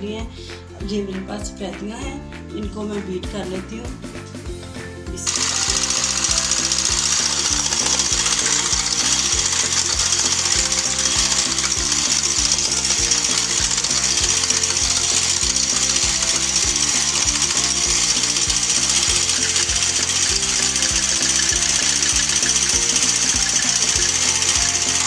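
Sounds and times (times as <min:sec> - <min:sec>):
background music with steady beat: 0:00.0 - 0:25.0
electric hand mixer whipping: 0:05.2 - 0:25.0.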